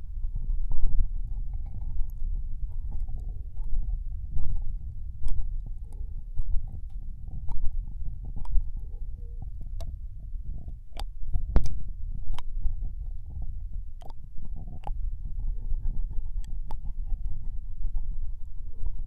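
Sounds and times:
muffled rubbing rumble: 0.0s - 19.0s
wet mouth clicks and smacks: 10.9s - 12.5s, 14.0s - 15.0s.

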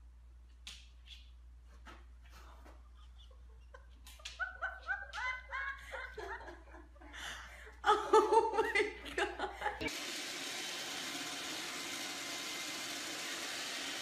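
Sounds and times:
person laughing: 2.7s - 9.9s.

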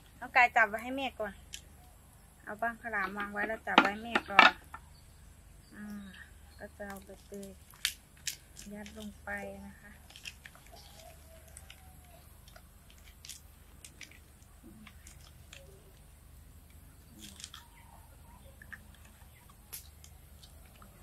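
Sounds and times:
leaves rustling and crackling: 6.6s - 21.0s.

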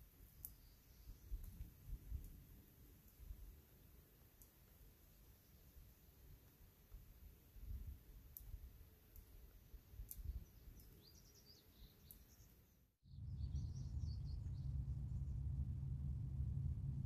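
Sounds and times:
small birds chirping: 0.2s - 2.4s, 4.3s - 6.6s, 8.3s - 15.5s
low steady rumble: 13.1s - 17.0s.

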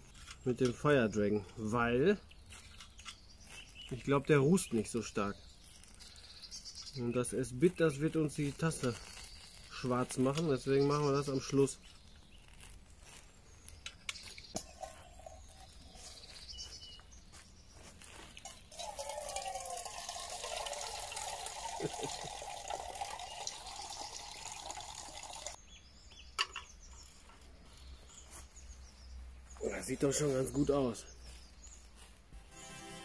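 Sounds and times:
water pouring into metal mug: 18.4s - 25.6s.

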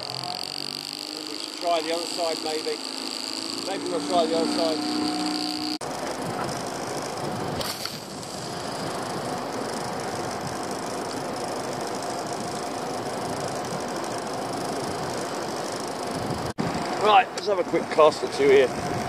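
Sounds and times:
boat engine running: 0.0s - 19.0s
wind noise: 5.8s - 10.7s, 16.1s - 17.2s, 18.4s - 19.0s.

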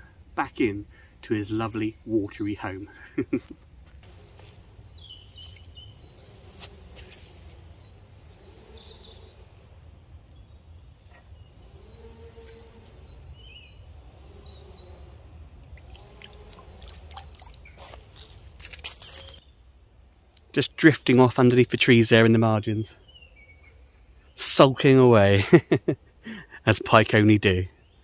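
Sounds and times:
songbird calling: 0.0s - 19.6s, 21.7s - 26.0s.

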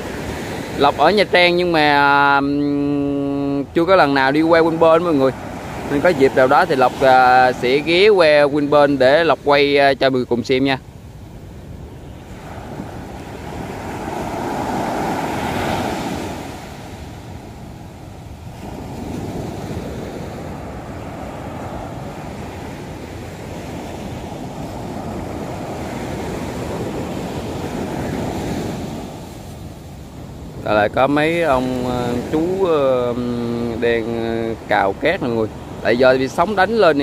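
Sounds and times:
surf breaking on beach: 0.0s - 37.0s
wind buffeting microphone: 10.6s - 36.9s.

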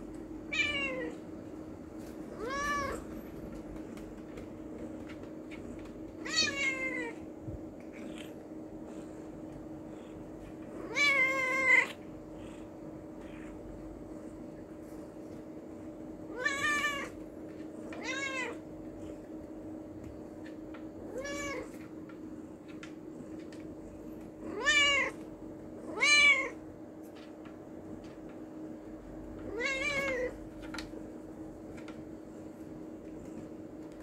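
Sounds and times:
cat meowing: 0.5s - 1.2s, 6.2s - 7.2s, 10.8s - 12.0s, 16.3s - 17.1s, 18.0s - 18.6s, 25.9s - 26.6s, 29.5s - 30.3s.

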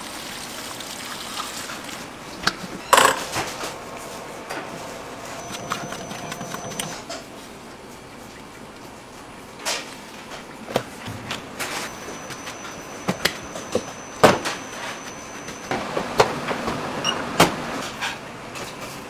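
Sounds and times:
steady background noise: 0.0s - 19.0s
kitchen items knocking and clattering: 2.5s - 3.8s.

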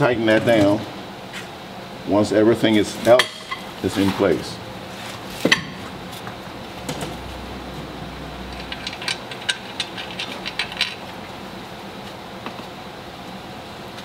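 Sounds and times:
low hum: 5.6s - 11.9s
metal parts clicking and tapping: 8.5s - 11.1s.

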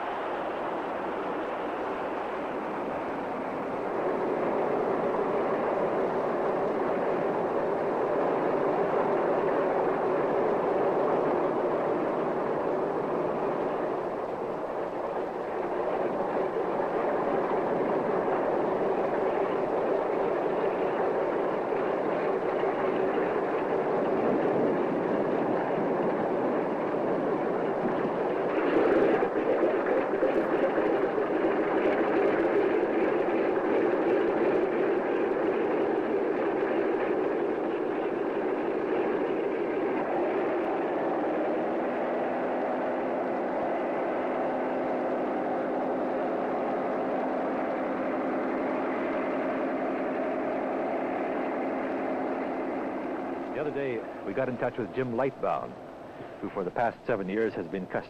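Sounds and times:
aircraft engines droning: 0.0s - 58.0s.

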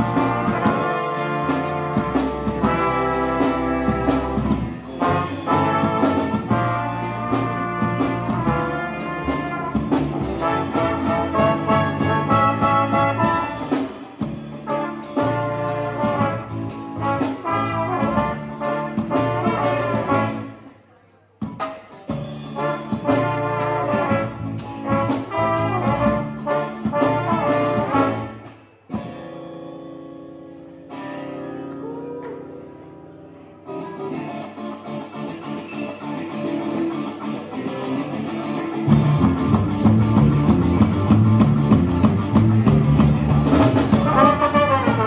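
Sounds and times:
trombone: 0.0s - 20.6s, 21.6s - 28.5s, 43.4s - 45.0s
bass guitar: 0.0s - 20.7s, 21.4s - 45.0s
electric guitar: 0.0s - 20.7s, 21.4s - 45.0s
trumpet: 0.0s - 20.7s, 21.5s - 28.5s, 43.6s - 45.0s.

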